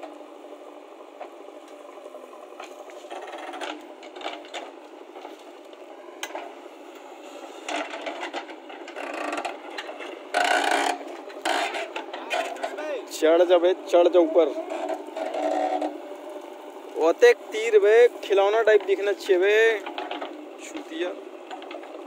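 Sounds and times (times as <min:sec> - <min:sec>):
backhoe engine and hydraulics: 0:00.0 - 0:22.0
steel bucket scraping soil: 0:07.2 - 0:13.2, 0:14.2 - 0:16.2.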